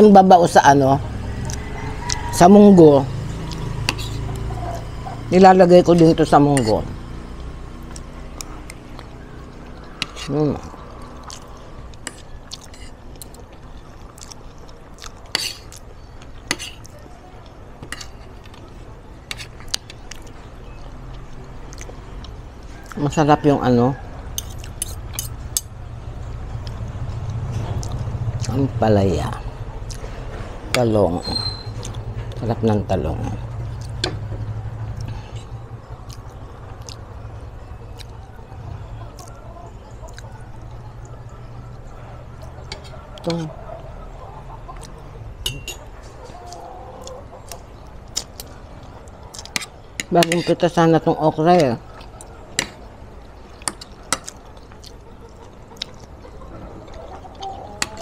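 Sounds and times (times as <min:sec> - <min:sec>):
low background hum: 0:00.0 - 0:58.0
person chewing food: 0:01.4 - 0:02.2, 0:03.1 - 0:05.0, 0:05.9 - 0:23.0, 0:24.3 - 0:28.6, 0:29.8 - 0:30.5, 0:31.7 - 0:32.4, 0:33.4 - 0:38.4, 0:39.0 - 0:43.6, 0:44.7 - 0:50.7, 0:51.6 - 0:58.0
cutlery clicking on plate: 0:24.4 - 0:25.7, 0:45.4 - 0:45.9, 0:52.6 - 0:52.8
cutlery clinking on plate: 0:45.4 - 0:45.9.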